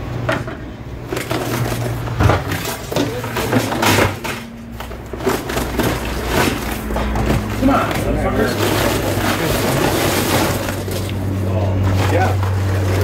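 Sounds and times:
steady low hum: 0:00.0 - 0:13.0
metal barbecue gear clattering: 0:01.1 - 0:11.2.

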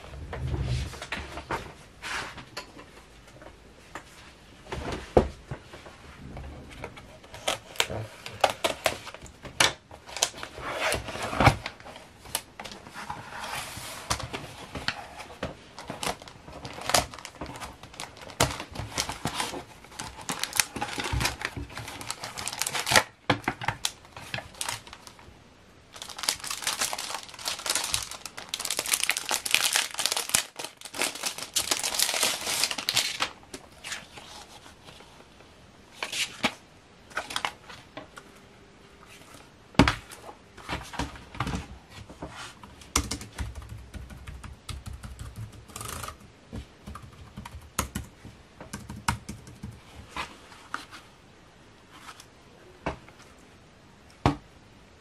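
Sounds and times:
plastic film crinkling and tearing: 0:10.0 - 0:12.8, 0:15.8 - 0:25.2, 0:25.9 - 0:34.5.

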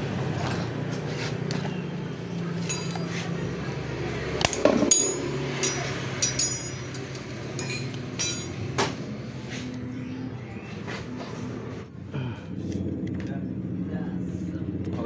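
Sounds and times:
metallic clinks and taps: 0:02.6 - 0:03.4, 0:04.4 - 0:09.0
steady low hum: 0:02.7 - 0:15.0.

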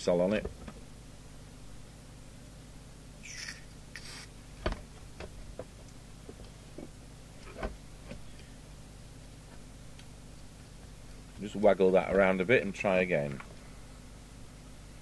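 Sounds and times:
aerosol spray hisses: 0:03.3 - 0:04.3.

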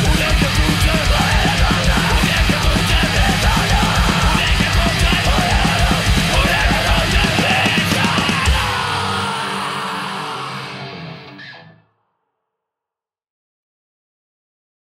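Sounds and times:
fast punk music: 0:00.0 - 0:11.5.

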